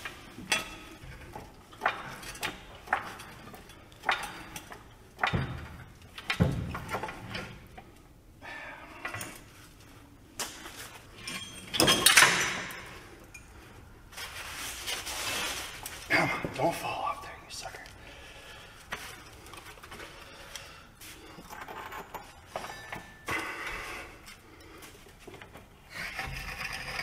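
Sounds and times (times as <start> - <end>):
metal clanks and knocks: 0.0 - 7.9, 11.1 - 13.0
metal scraping rattle: 25.9 - 27.0.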